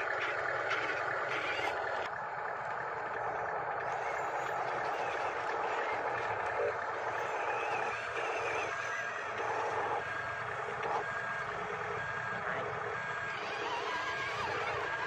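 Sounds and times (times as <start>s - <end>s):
model truck running: 0.0s - 15.0s.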